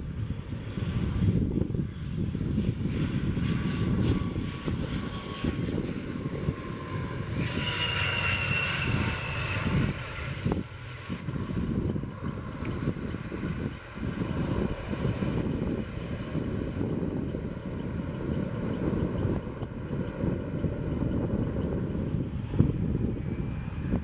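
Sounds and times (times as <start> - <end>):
high engine whine: 0.0 - 24.0
turboprop aircraft droning: 0.0 - 24.0
wind rumble on microphone: 0.0 - 24.0.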